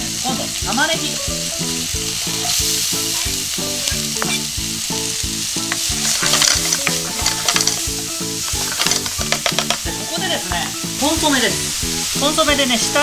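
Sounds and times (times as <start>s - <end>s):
onion and chicken sizzling: 0.0s - 13.0s
spatula scraping pan: 2.2s - 4.6s, 5.6s - 10.7s
spatula clicking on pan: 5.6s - 9.9s.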